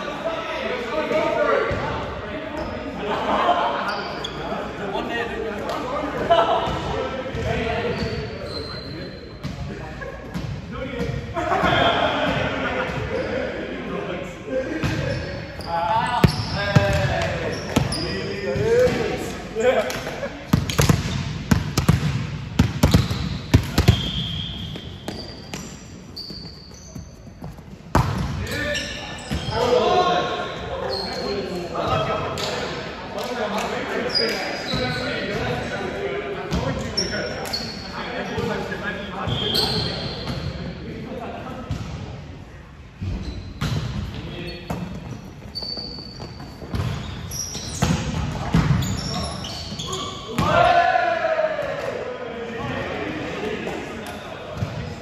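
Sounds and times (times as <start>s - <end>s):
shoes squeaking on court floor: 3.8s - 4.6s, 7.4s - 9.7s, 14.8s - 19.1s, 20.5s - 32.5s, 34.0s - 35.4s, 36.5s - 40.6s, 43.0s - 50.5s
volleyballs bouncing on court: 19.9s - 25.8s, 26.4s - 28.4s, 46.2s - 49.0s.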